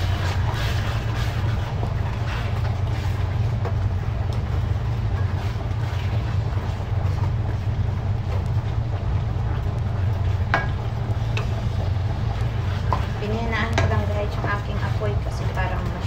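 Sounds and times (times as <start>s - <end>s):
wooden spoon scraping metal pan: 0.0s - 3.2s
steady low rumble: 0.0s - 16.0s.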